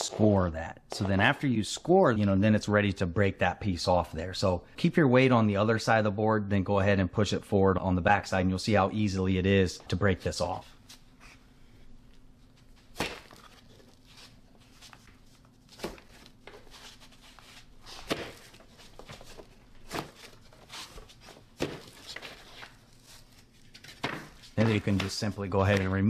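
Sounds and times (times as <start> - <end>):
board snapping with sharp cracks: 12.9 - 13.6.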